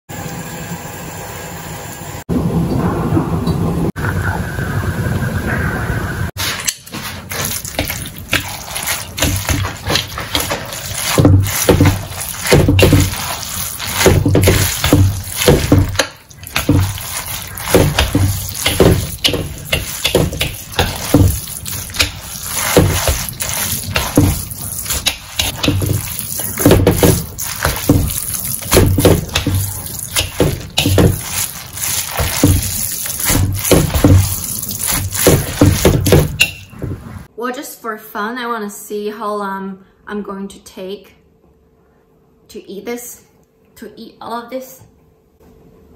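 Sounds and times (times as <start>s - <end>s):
noodles sizzling in a wok: 10.6s - 35.9s.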